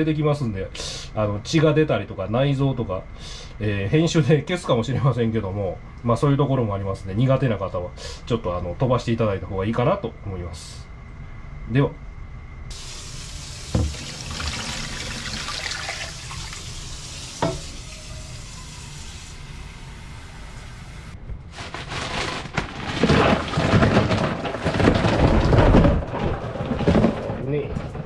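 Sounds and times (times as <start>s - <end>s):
ice rattling and splashing: 12.7s - 17.2s, 21.5s - 28.0s
tap water running into container: 12.7s - 19.5s.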